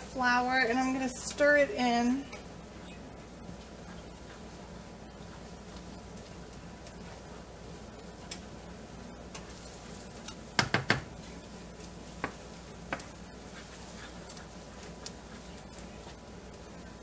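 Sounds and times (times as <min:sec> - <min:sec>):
spoon knocking against pan: 0:10.6 - 0:11.2.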